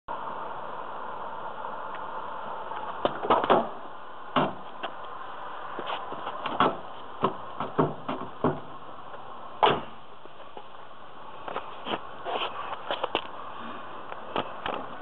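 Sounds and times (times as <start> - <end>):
car door knocking on curb: 6.4 - 8.7.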